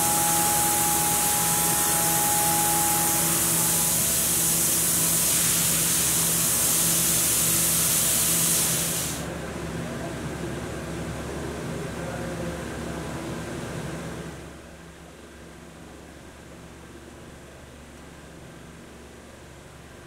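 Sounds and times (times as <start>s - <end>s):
coolant spray hissing: 0.0s - 9.3s
machine spindle hum: 0.0s - 9.3s.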